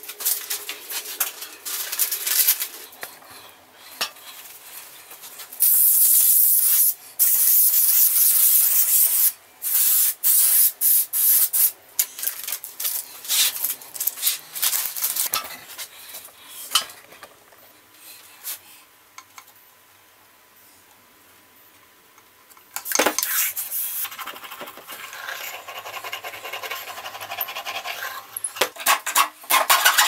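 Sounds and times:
aerosol spray can hissing: 5.6 - 11.7.

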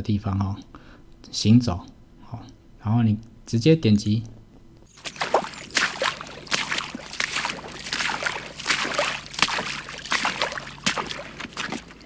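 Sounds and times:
wading through water: 4.9 - 12.0.

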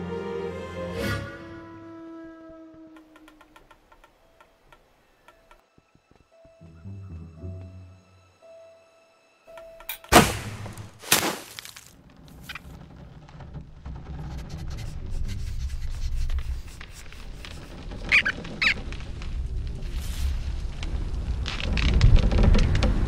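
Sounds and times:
short high squeaks: 17.3 - 18.8
low rumble: 18.8 - 23.0.

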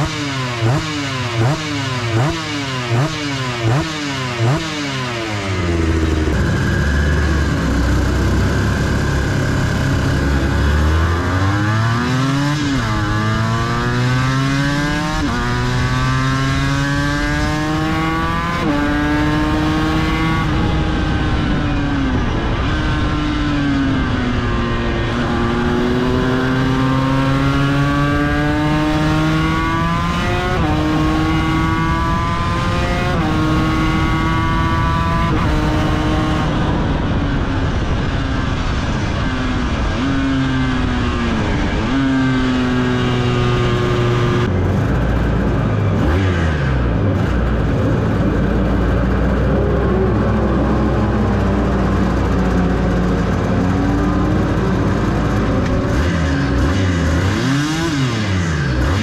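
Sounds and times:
racing motorcycle engine revving: 0.0 - 59.0.

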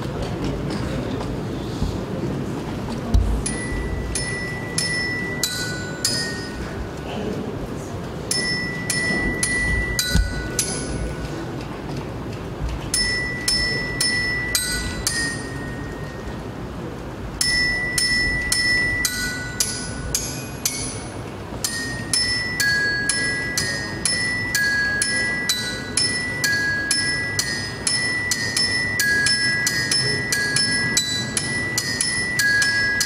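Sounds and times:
mallets on tuned metal percussion: 3.4 - 7.0, 8.3 - 11.4, 12.9 - 16.4, 17.4 - 33.0.

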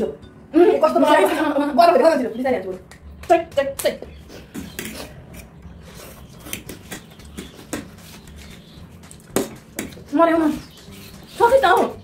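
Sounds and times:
soft eating sounds: 4.1 - 12.0.

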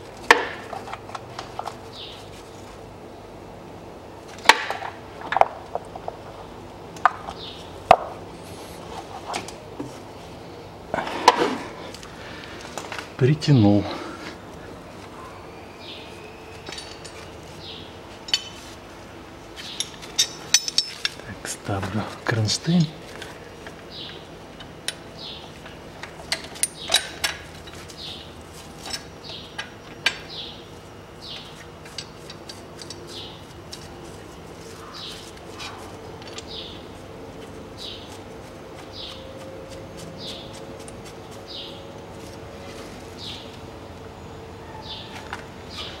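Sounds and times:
bird chirping: 15.1 - 18.0, 38.8 - 39.5, 41.5 - 41.9, 43.2 - 43.6, 44.2 - 46.0
metallic clinks of bolts: 19.8 - 21.2.

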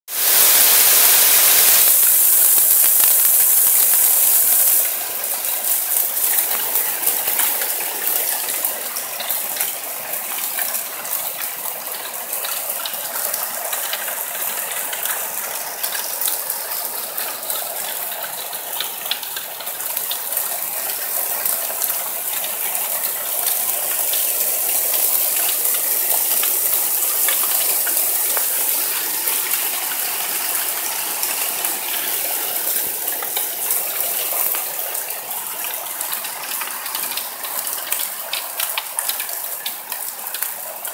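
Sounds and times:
heavy rain hiss: 0.1 - 9.2
hailstones clicking: 0.1 - 40.9.

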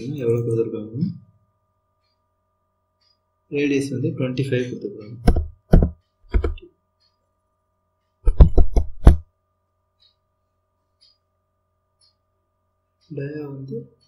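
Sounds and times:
keyboard keys tapping: 5.2 - 6.7, 8.3 - 9.3.

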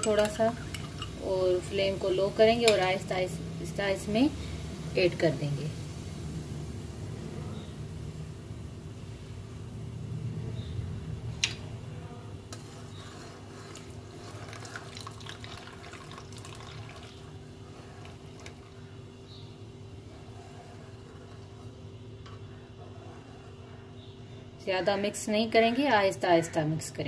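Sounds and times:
metal spoon clinking: 0.0 - 1.2
steady low hum: 0.0 - 27.0
liquid pouring into pot: 13.6 - 18.8.

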